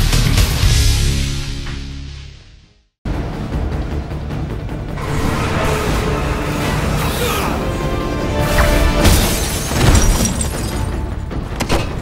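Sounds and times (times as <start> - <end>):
dramatic orchestral music: 3.1 - 12.0
crashing shattering impacts: 8.6 - 11.2.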